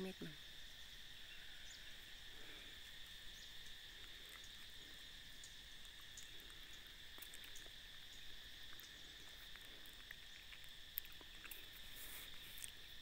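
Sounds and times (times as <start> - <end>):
insects droning: 0.0 - 13.0
faint ticks: 5.4 - 13.0.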